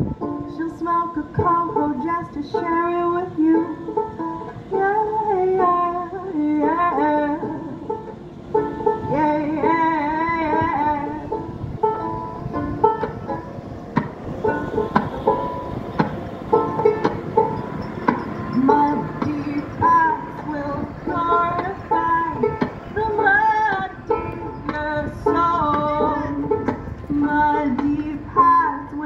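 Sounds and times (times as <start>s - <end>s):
banjo-ukulele picked and strummed: 0.0s - 29.0s
woman singing: 0.4s - 4.1s, 4.7s - 8.0s, 9.0s - 11.4s, 18.6s - 29.0s.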